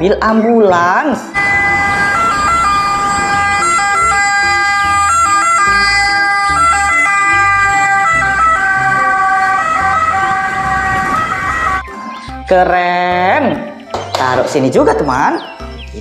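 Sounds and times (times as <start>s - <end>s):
two-tone ambulance siren: 1.4s - 12.2s.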